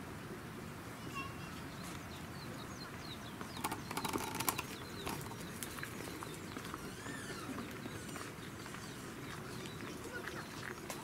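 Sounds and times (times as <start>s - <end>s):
birds chirping and whistling: 1.5s - 11.0s
clicks and rustles: 3.5s - 6.8s.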